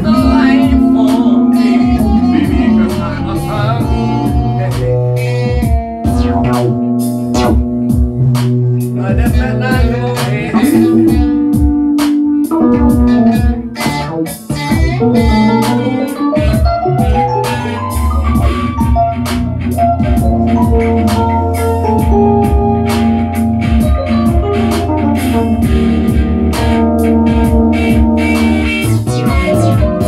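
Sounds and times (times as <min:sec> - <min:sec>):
rising pitch glide: 0:00.0 - 0:03.8
drum machine beat: 0:00.0 - 0:30.0
guitar: 0:00.0 - 0:30.0
keyboard: 0:00.0 - 0:30.0
synthesizers: 0:00.0 - 0:30.0.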